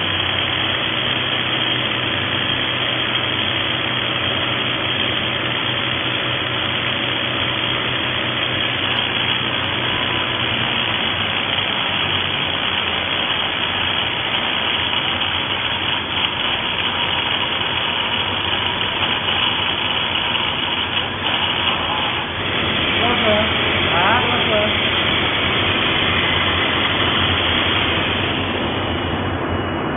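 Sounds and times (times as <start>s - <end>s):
rotary hammer drilling into rock: 0.1s - 28.2s.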